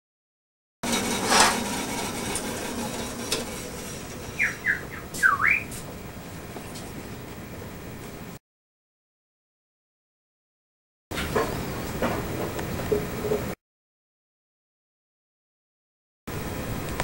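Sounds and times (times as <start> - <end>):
high squeaky chirps: 3.1 - 5.8.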